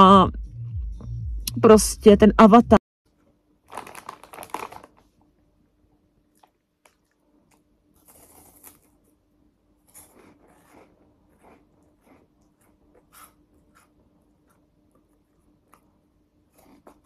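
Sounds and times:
foil snack bag crinkling: 3.6s - 5.2s
faint crunching and chewing: 6.2s - 17.0s.

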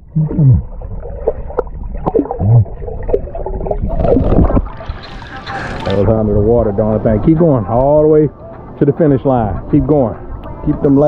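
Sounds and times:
underwater gurgling and sloshing: 0.0s - 7.4s.

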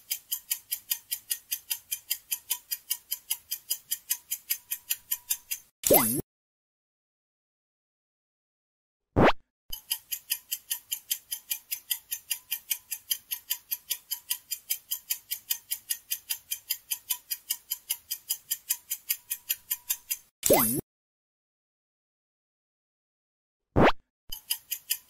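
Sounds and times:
clock ticking quickly: 0.0s - 6.2s, 9.7s - 20.8s, 24.3s - 25.0s.

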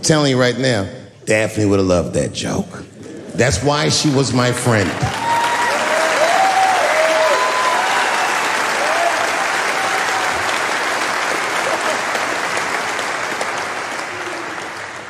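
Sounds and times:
audience applauding and cheering: 3.5s - 15.0s
whoops: 5.1s - 10.7s.

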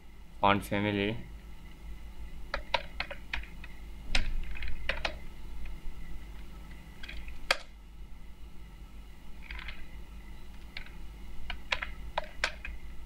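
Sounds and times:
computer keyboard typing: 2.5s - 5.2s, 10.5s - 12.8s.

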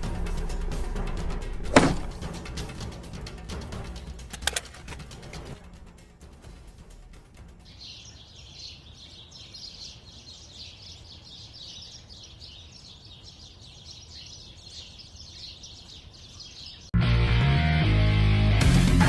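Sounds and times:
birds chirping: 6.9s - 17.0s.

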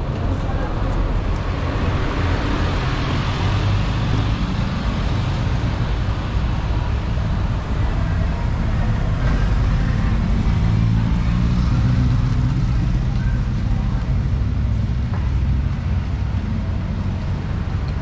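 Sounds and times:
bus engine humming: 0.0s - 18.0s
street traffic: 0.0s - 18.0s.

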